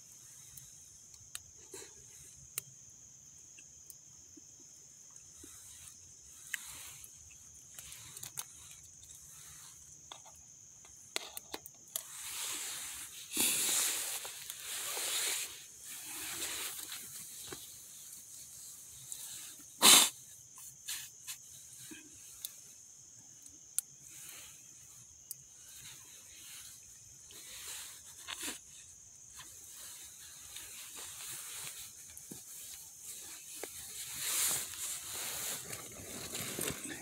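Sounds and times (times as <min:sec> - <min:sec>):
steady high hiss: 0:00.0 - 0:37.0
wood fire crackling: 0:05.0 - 0:19.7, 0:20.3 - 0:37.0
fire pops: 0:10.0 - 0:18.2.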